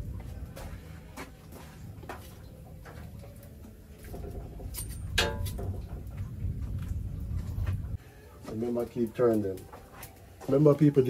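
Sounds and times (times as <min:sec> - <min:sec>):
low steady rumble: 0:00.0 - 0:08.4
wood fire crackling: 0:00.0 - 0:11.0.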